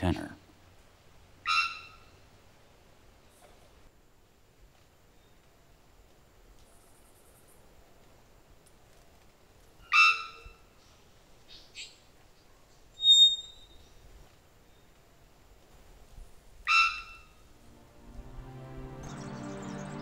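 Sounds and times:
high bird whistle: 13.0 - 13.8.

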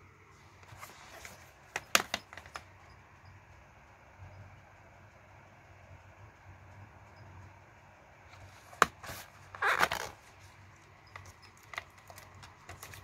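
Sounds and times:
plastic rustling and scraping: 0.5 - 2.7, 8.3 - 13.0.

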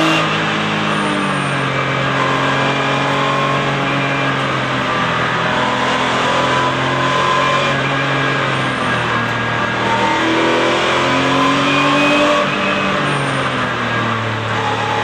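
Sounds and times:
racing engine revving: 0.0 - 15.0.

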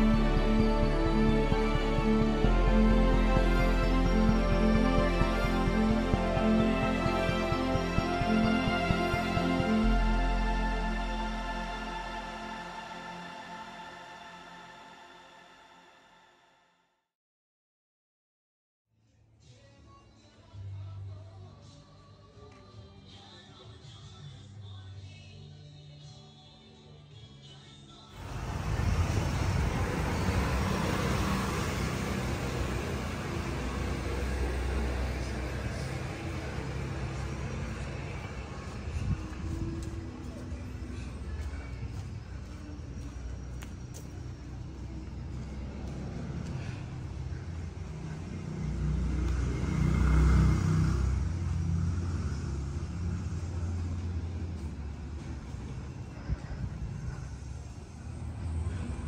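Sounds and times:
vehicle engine rumbling past: 28.2 - 59.0.

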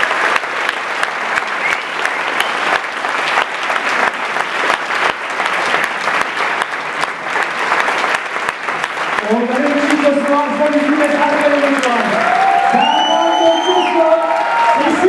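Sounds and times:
large audience applauding: 0.0 - 15.0.

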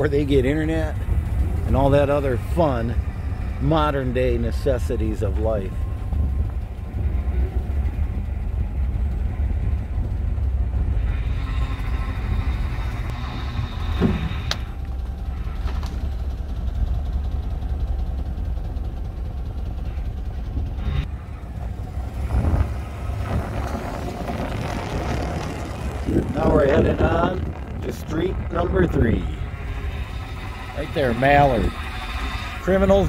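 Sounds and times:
car driving over rough road: 20.4 - 33.0
short creak: 22.6 - 26.1.

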